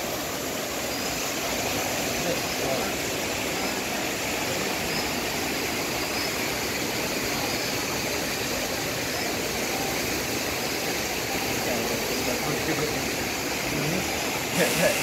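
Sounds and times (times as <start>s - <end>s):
steady rushing noise: 0.0s - 15.0s.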